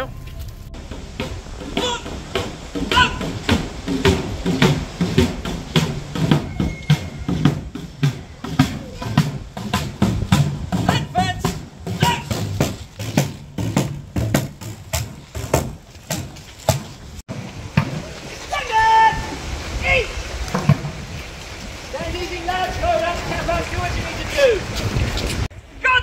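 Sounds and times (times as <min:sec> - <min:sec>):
people talking: 0:00.0 - 0:00.9, 0:01.7 - 0:04.7, 0:10.8 - 0:12.4, 0:18.5 - 0:20.2, 0:21.9 - 0:24.7
snare drum marching cadence: 0:00.8 - 0:17.0.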